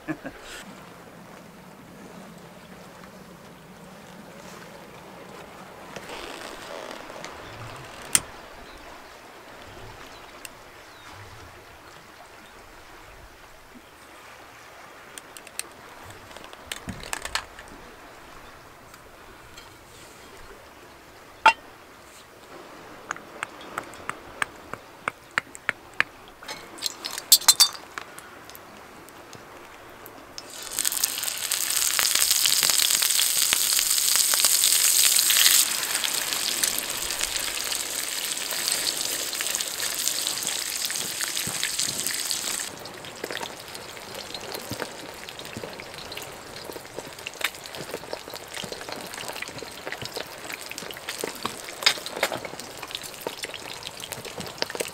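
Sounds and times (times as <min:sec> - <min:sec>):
small crackles and ticks: 0:05.4 - 0:08.4, 0:15.1 - 0:17.8, 0:26.7 - 0:54.9
cast iron pan clinking on stove: 0:21.4 - 0:21.6, 0:26.5 - 0:27.8
fish sizzling in hot oil: 0:30.4 - 0:54.9.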